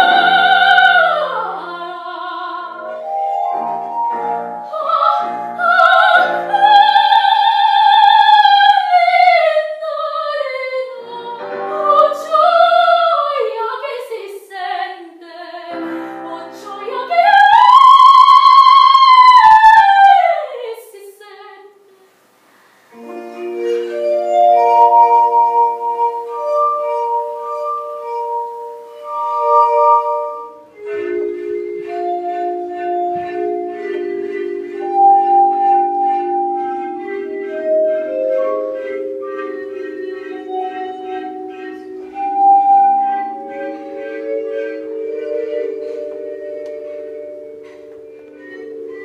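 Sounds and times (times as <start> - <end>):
glass instruments playing chords: 23.0 - 49.0.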